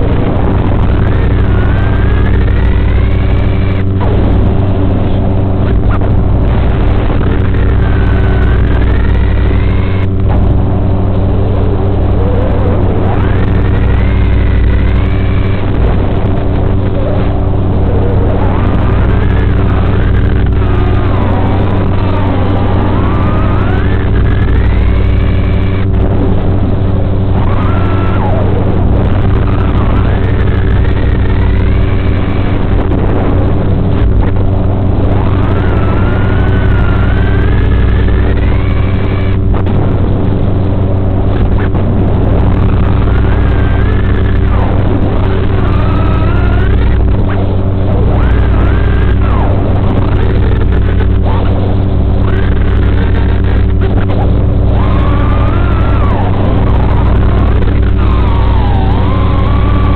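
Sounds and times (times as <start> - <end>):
drone motors whining: 0.0 - 59.9
low electrical buzz: 0.0 - 59.9.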